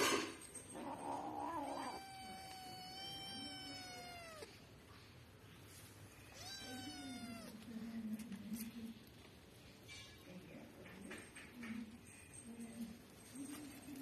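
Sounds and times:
kitten yowling: 0.9s - 4.5s, 6.3s - 7.6s.

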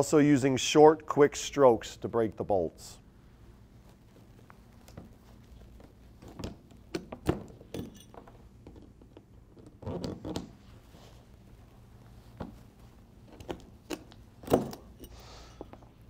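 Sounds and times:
metallic clicks and clinks: 7.6s - 8.4s, 13.4s - 15.2s.

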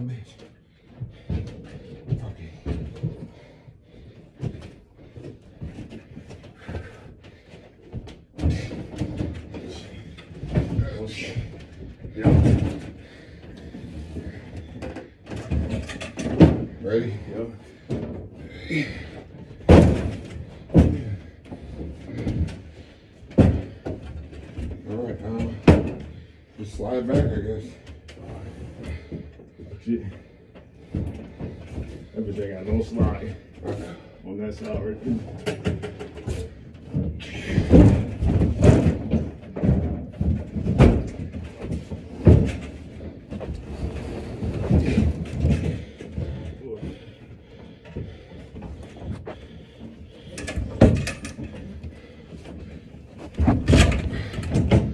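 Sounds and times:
heavy furniture thudding: 1.0s - 34.1s, 34.8s - 54.9s
heavy cabinet thumping on stairs: 17.8s - 26.2s, 35.6s - 43.5s
shuffling steps: 39.6s - 50.8s.

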